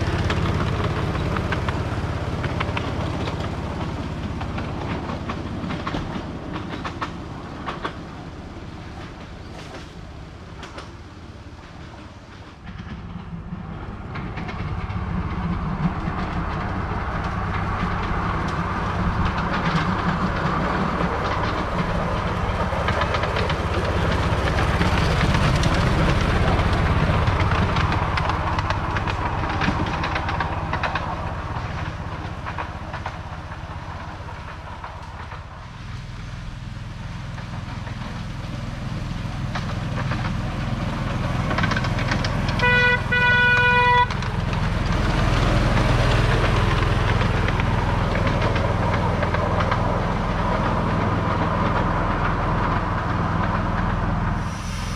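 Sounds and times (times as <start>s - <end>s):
train wheels clattering on rails: 0.0s - 54.9s
locomotive horn toot: 42.5s - 44.3s.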